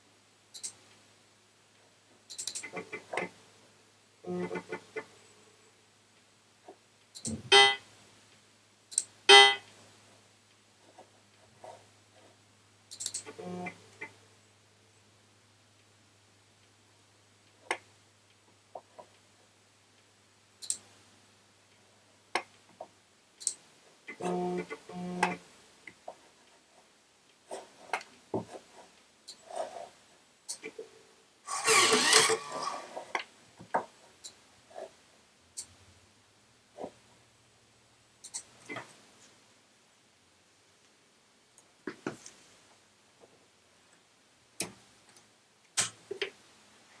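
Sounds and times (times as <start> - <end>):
faint steady hum: 0.0 - 47.0
sharp mechanical clicks: 0.5 - 0.9, 2.3 - 3.3, 8.9 - 9.1, 12.9 - 13.4, 20.6 - 20.9
short buzzing tones: 7.2 - 7.8, 31.5 - 32.9.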